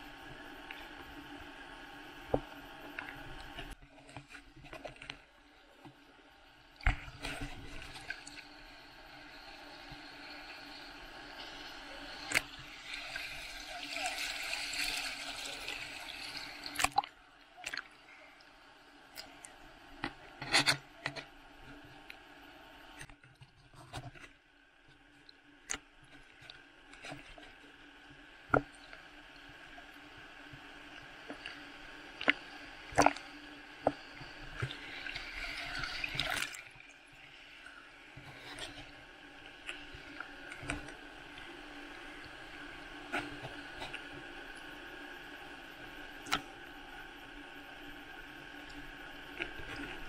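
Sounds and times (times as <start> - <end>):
sea water sloshing and splashing: 6.8 - 18.4, 30.8 - 44.6.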